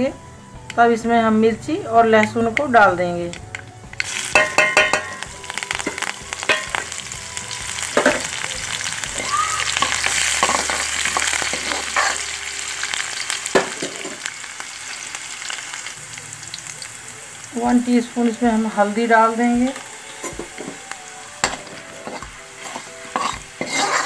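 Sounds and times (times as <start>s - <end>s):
spices crackling: 0.0s - 24.0s
garlic sizzling in hot oil: 2.2s - 24.0s
ladle scraping pan: 8.0s - 14.2s, 20.1s - 24.0s.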